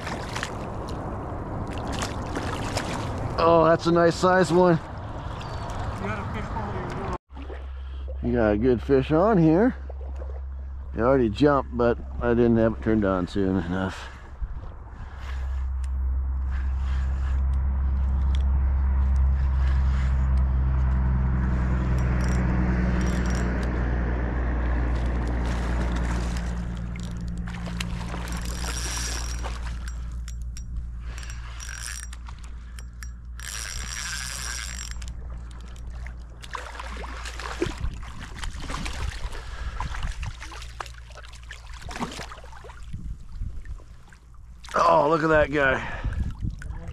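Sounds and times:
fishing reel whirring: 21.4 - 23.8, 24.9 - 36.4
reel drag ratcheting clicks: 21.5 - 23.8, 26.2 - 36.5.

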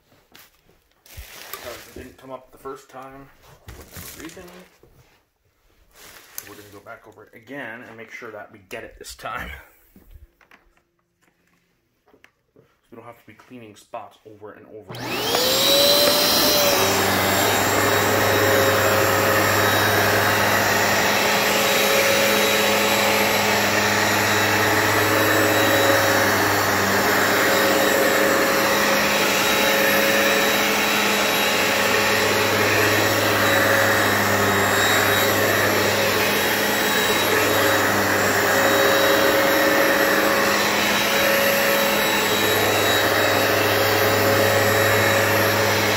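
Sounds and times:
carpet cleaner motor whine: 14.9 - 45.9.

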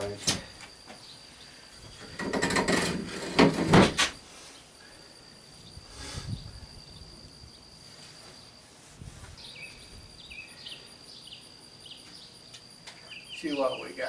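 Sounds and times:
metal level scraping boat hull: 2.0 - 4.0.

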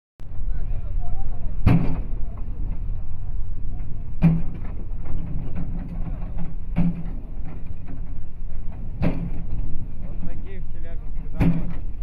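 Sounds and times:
excavator diesel engine running: 0.2 - 12.0
bucket knocking on asphalt: 11.3 - 11.9.

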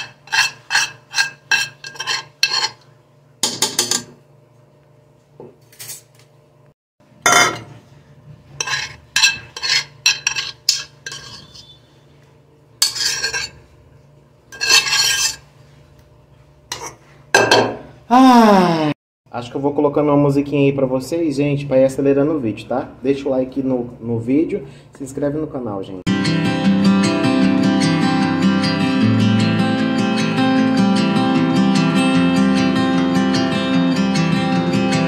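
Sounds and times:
metal spoon scraping a pot: 0.0 - 2.9, 8.5 - 12.0, 12.8 - 13.8, 14.5 - 15.5, 16.7 - 17.0.

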